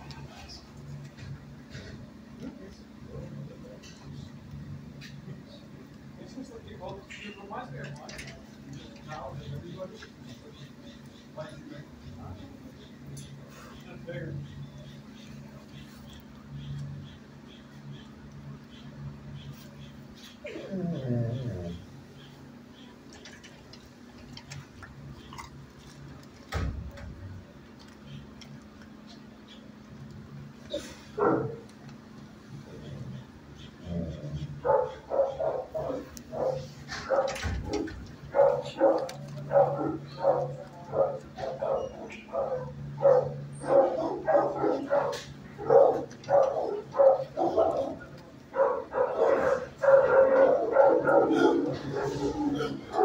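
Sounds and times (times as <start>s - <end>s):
steady low hum: 0.0s - 53.0s
dogs barking: 5.0s - 53.0s.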